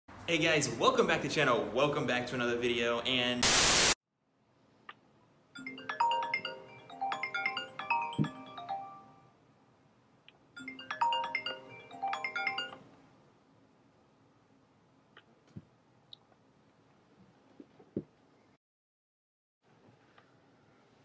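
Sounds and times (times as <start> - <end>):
phone ringtone chiming: 5.6 - 9.3, 10.6 - 12.8.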